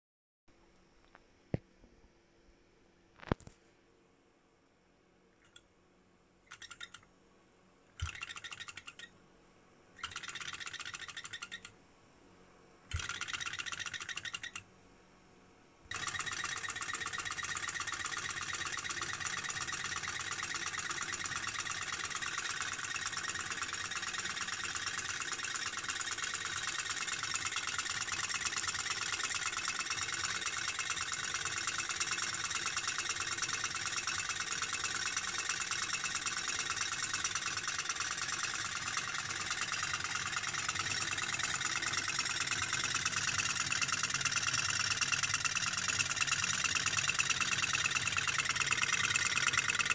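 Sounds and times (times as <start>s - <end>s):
model engine clattering: 15.9s - 49.9s.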